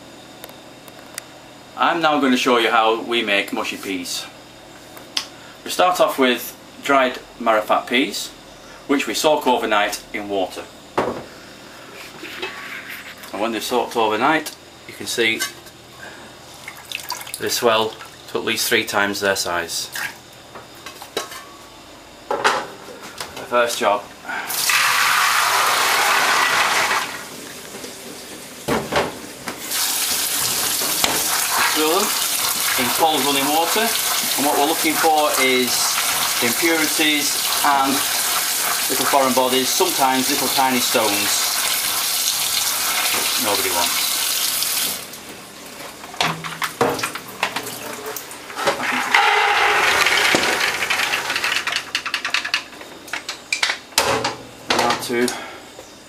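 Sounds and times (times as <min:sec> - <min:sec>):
water pouring into colander: 0:24.5 - 0:27.2, 0:29.7 - 0:45.1
wet peas clattering into pot: 0:48.8 - 0:52.7.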